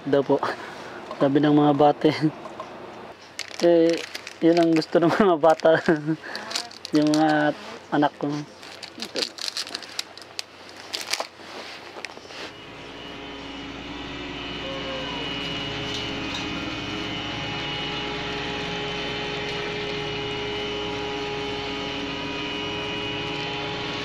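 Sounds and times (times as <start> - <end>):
snack packaging rustling: 3.2 - 12.6
boat engine drone: 12.2 - 24.0.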